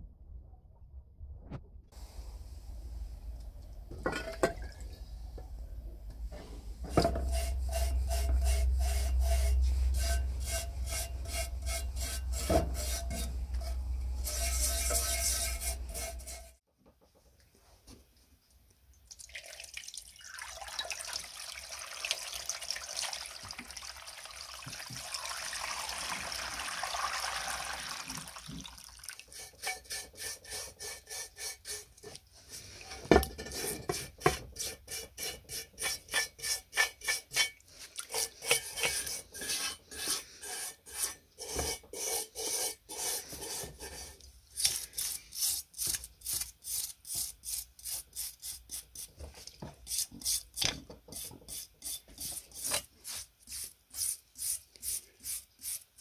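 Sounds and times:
stiff brush scrubbing metal: 0:06.8 - 0:16.6, 0:29.3 - 0:49.2
hose water pouring on metal: 0:19.2 - 0:30.2.

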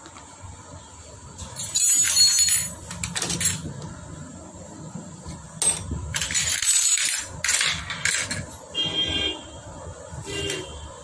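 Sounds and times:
metal tools clinking on engine parts: 0:01.6 - 0:03.7, 0:05.6 - 0:08.5.

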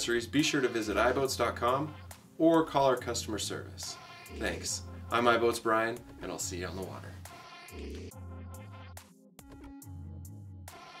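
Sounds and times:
electronic synthesizer music: 0:00.0 - 0:02.2, 0:03.7 - 0:05.6, 0:06.7 - 0:09.0.

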